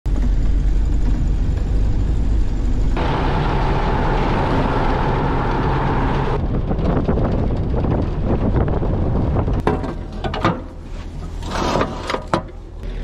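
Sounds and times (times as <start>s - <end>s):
truck engine rumbling: 0.0s - 13.0s
wind and road noise: 0.1s - 13.0s
steady high hum: 0.4s - 6.4s.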